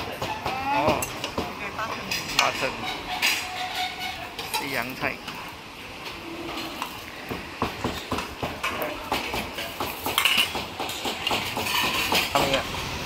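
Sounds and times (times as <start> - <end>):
kitchen utensils clinking: 0.0 - 5.4, 7.8 - 12.7.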